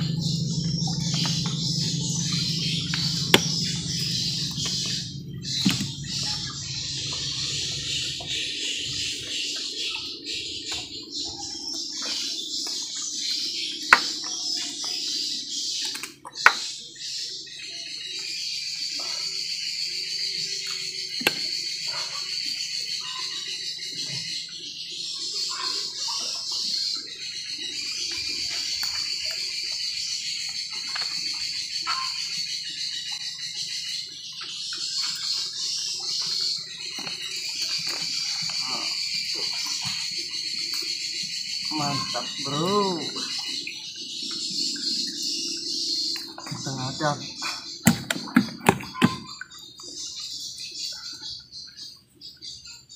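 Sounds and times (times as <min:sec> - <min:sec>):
low engine hum: 0:00.0 - 0:11.1
birds and insects chorus: 0:00.0 - 0:52.9.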